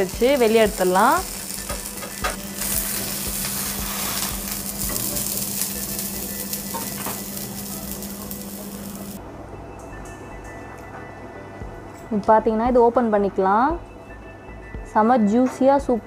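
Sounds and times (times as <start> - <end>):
food sizzling in a pan: 0.0 - 9.2.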